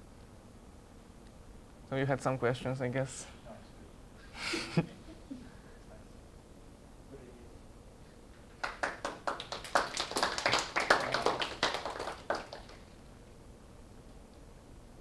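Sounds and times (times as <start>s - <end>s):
small audience clapping: 8.3s - 13.0s.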